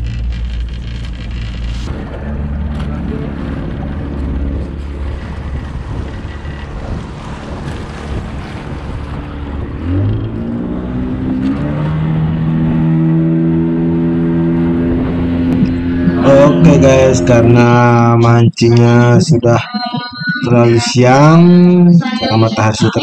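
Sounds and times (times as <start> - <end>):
boat engine running: 0.0 - 23.0
water rushing past hull: 1.7 - 16.2.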